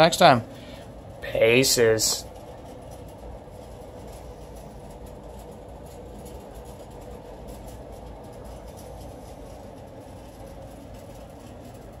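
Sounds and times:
low background rumble: 0.0 - 12.0.

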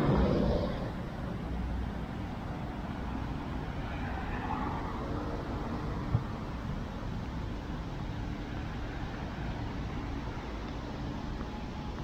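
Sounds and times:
vehicle passing: 0.0 - 1.8
low traffic rumble: 0.0 - 12.0.

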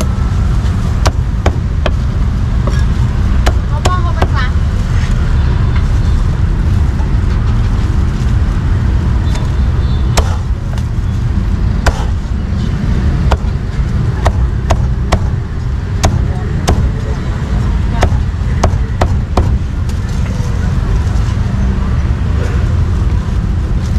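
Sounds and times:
road traffic rumble: 0.0 - 23.9
cleaver chopping on wooden block: 10.2 - 10.5, 11.8 - 12.2, 14.2 - 15.4, 16.0 - 16.9, 18.0 - 19.6.

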